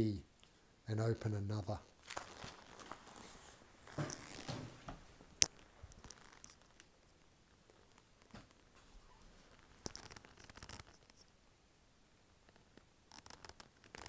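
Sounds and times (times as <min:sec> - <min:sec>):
clothes rustling: 0:01.9 - 0:06.8.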